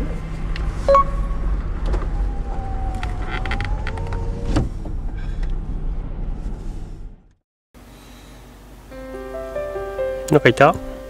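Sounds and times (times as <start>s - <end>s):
engine running low: 0.0s - 8.9s
short beep: 0.9s - 1.3s.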